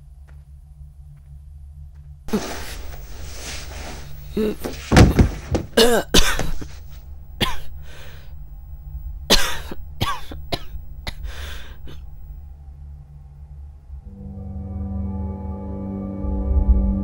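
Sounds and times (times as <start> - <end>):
low steady hum: 0.0 - 17.0
man coughing and gasping: 4.2 - 8.3, 9.3 - 12.2.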